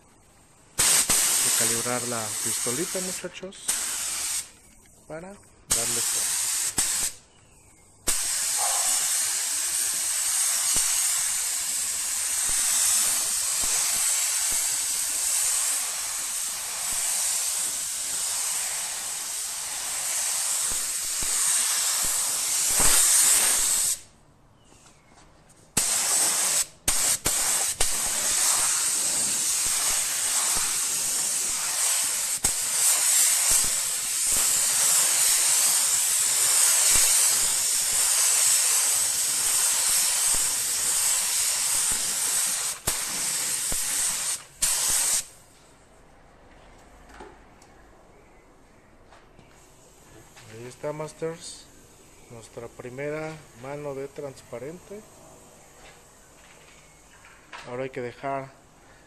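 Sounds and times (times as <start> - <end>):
paint spray gun hissing: 0.7 - 4.6, 5.7 - 7.3, 8.0 - 24.1, 25.7 - 45.4.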